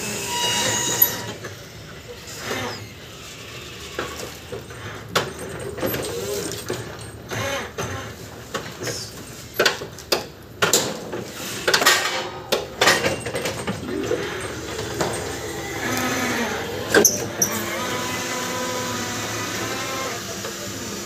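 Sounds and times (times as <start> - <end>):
steady mechanical background: 0.0 - 19.9
metallic clanks and knocks: 11.7 - 16.1.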